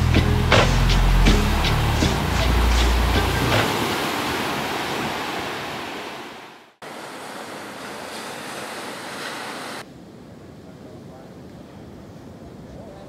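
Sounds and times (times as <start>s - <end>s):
wind on microphone: 0.0s - 6.3s
sea surf waves: 0.0s - 10.0s.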